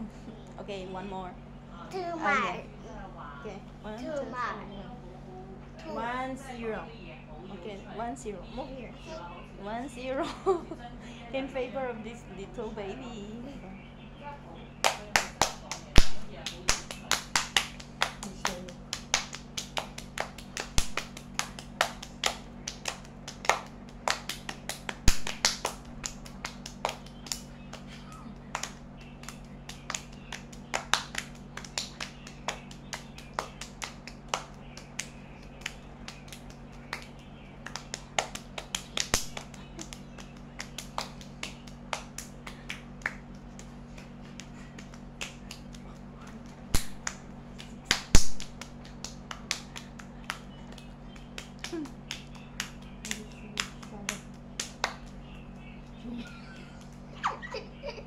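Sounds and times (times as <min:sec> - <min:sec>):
steady low hum: 0:00.0 - 0:58.0
hands clapping: 0:14.8 - 0:57.1.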